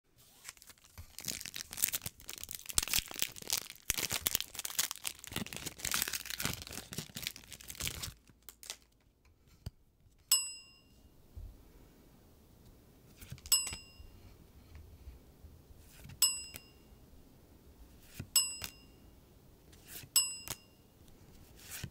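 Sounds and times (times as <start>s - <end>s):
foil wrapper tearing and crinkling: 0.2s - 9.0s
bell-like dings: 10.3s - 11.0s, 13.5s - 14.2s, 16.2s - 16.9s, 18.4s - 19.0s, 20.2s - 20.9s.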